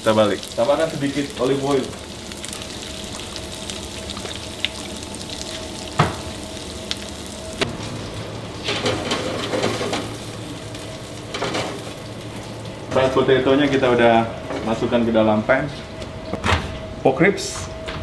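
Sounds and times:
potatoes sizzling in frying pan: 0:00.0 - 0:07.6.

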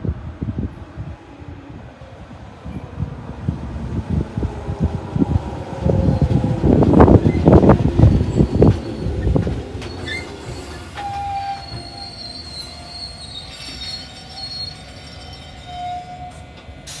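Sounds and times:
train wheels rumbling: 0:00.0 - 0:17.0
train brakes squealing: 0:07.2 - 0:17.0.

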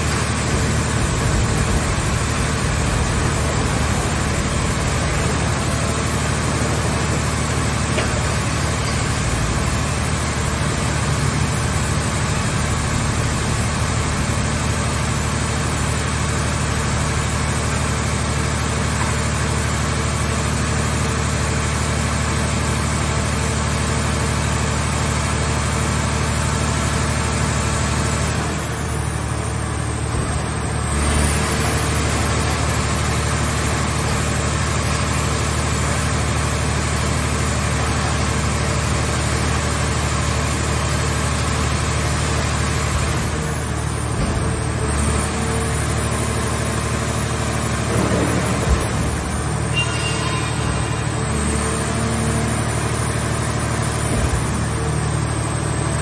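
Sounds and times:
hydraulic machinery droning: 0:42.5 - 0:56.0.

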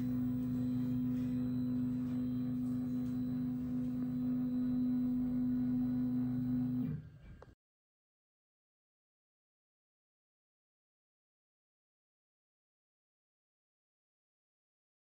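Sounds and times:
stepper motors humming: 0:00.0 - 0:07.0.

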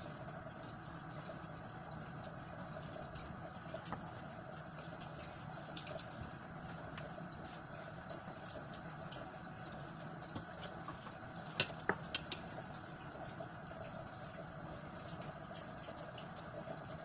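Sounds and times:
tap water running into strainer: 0:02.6 - 0:14.4.

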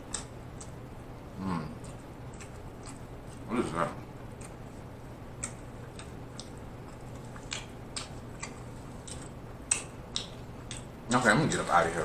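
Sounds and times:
faint room hum: 0:00.0 - 0:12.0
mouth chewing clicks and lip smacks: 0:00.1 - 0:00.8, 0:01.8 - 0:03.5, 0:04.3 - 0:11.0.

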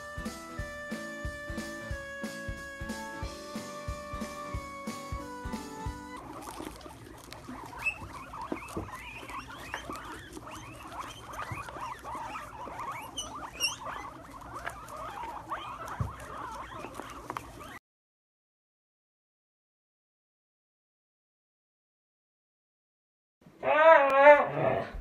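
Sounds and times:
guitar music: 0:00.0 - 0:06.2
guinea pigs squeaking: 0:00.0 - 0:17.8
crunching clicks of chewing: 0:06.1 - 0:17.8.

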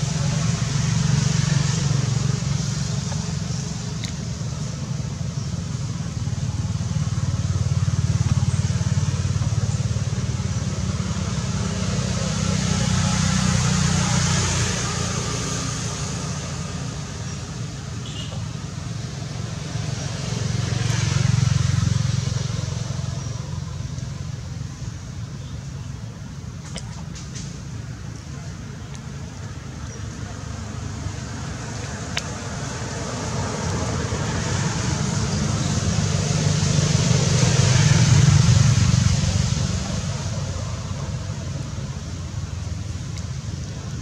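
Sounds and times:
passing vehicle engine drone: 0:00.0 - 0:17.9, 0:18.6 - 0:24.8, 0:30.2 - 0:44.0.

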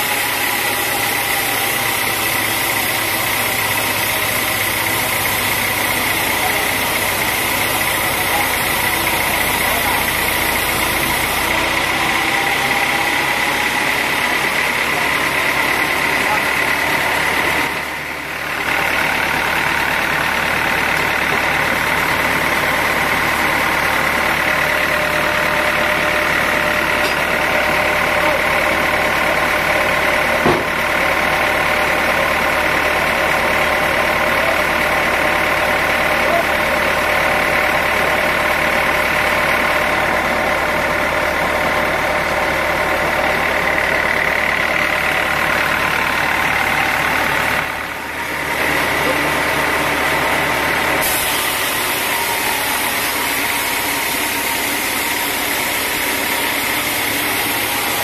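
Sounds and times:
sawmill machinery whining: 0:00.0 - 0:58.0
sharp knock: 0:30.4 - 0:30.7.

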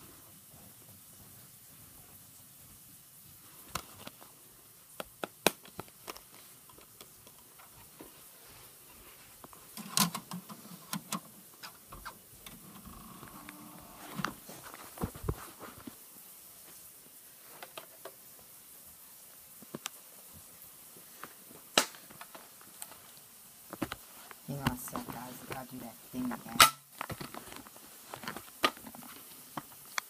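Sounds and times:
handling clicks and knocks: 0:09.7 - 0:13.0.

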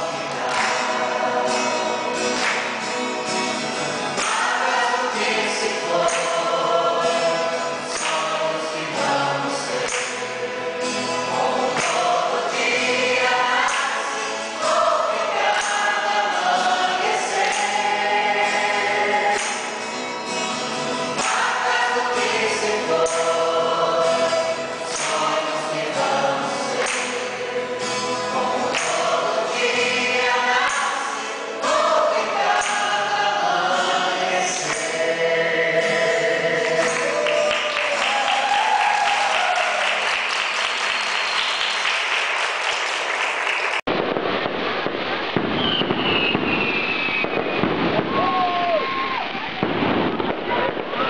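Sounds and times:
fireworks crackling: 0:00.0 - 0:35.1, 0:36.6 - 0:51.0
mixed choir singing: 0:00.0 - 0:40.6
dense crackling noise: 0:40.3 - 0:51.0
falling whistle: 0:40.8 - 0:42.0, 0:45.6 - 0:49.5.

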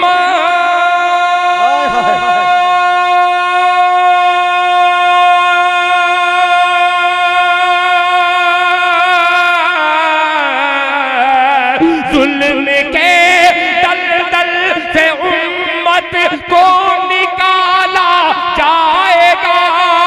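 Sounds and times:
man singing into a microphone: 0:00.0 - 0:20.0.

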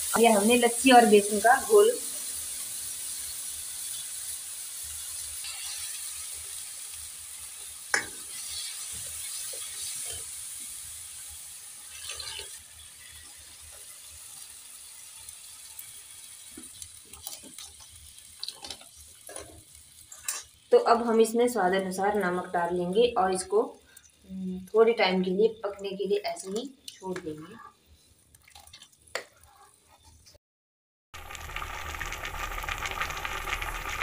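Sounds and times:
batter hissing in a hot pan: 0:00.0 - 0:24.4, 0:31.2 - 0:34.0.

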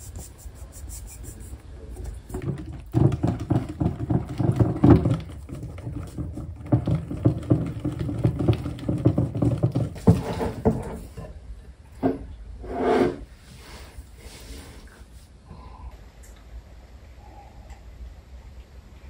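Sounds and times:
whisk beating in bowl: 0:02.2 - 0:10.2.

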